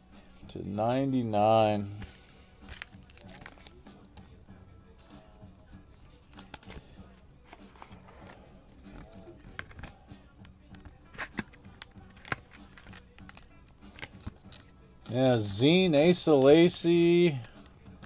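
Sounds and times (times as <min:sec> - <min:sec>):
plastic card holder clicks and scrapes: 0:07.5 - 0:10.0, 0:10.7 - 0:14.4.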